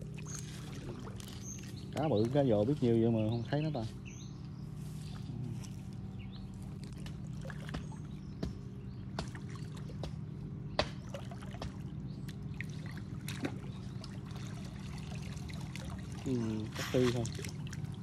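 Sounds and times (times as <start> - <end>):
water trickling: 0.0 - 3.0, 11.1 - 18.0
low hum: 0.0 - 18.0.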